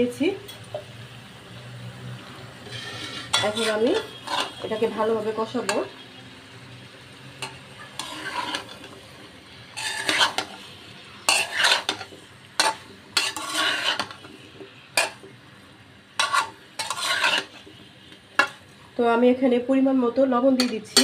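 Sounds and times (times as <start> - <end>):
metal spatula scraping a pan: 2.6 - 6.0, 7.4 - 15.3, 16.2 - 18.7, 20.6 - 21.0.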